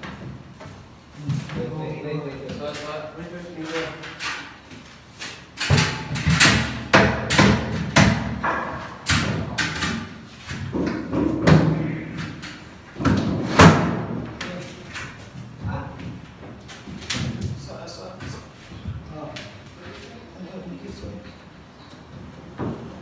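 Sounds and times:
wooden panels knocking: 5.6 - 12.4.

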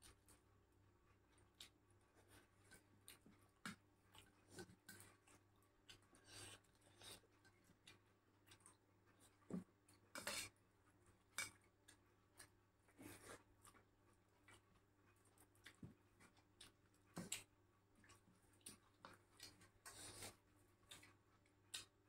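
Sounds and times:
soft chewing: 0.0 - 22.0.

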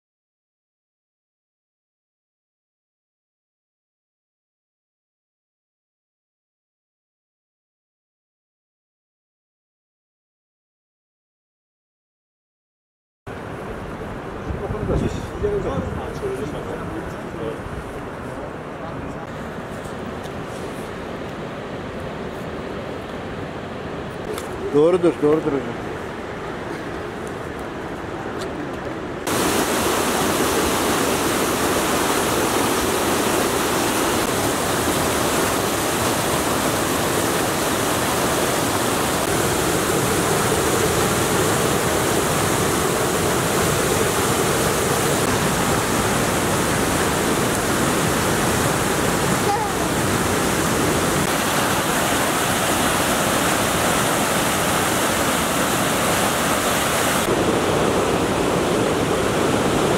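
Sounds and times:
waterfall rushing over rocks: 29.3 - 59.9.

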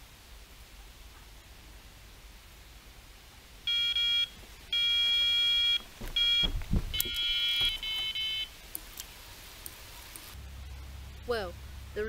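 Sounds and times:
electronic bite alarm beeping: 3.7 - 8.5
low knocks: 5.8 - 8.0.

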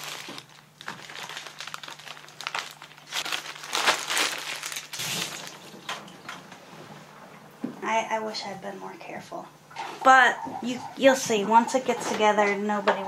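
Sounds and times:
wax paper crinkling: 0.0 - 5.8.

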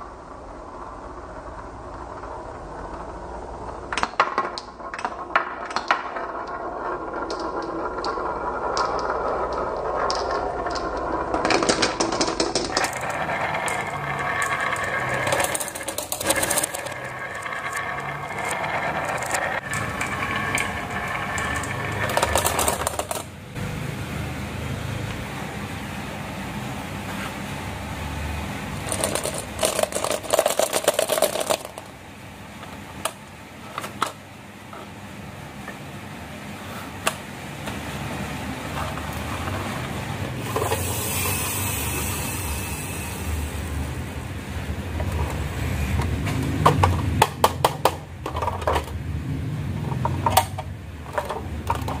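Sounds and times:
steady rolling hum: 0.0 - 52.0
marbles clattering down a track: 0.2 - 23.3, 28.8 - 32.0, 38.7 - 44.1, 49.8 - 52.0.

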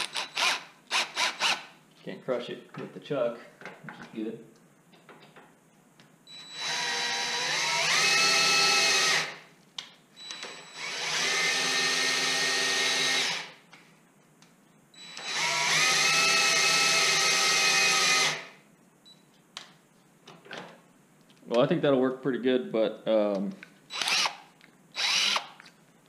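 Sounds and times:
cordless drill whining: 0.0 - 1.7, 6.4 - 9.4, 10.2 - 13.6, 15.0 - 18.5, 23.9 - 25.6.

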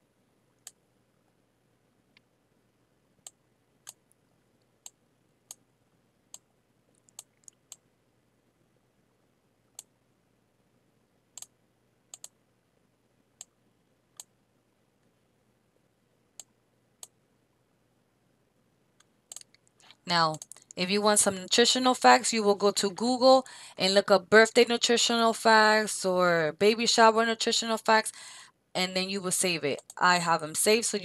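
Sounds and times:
computer mouse clicking: 6.3 - 7.8, 12.1 - 12.4, 29.8 - 30.0.

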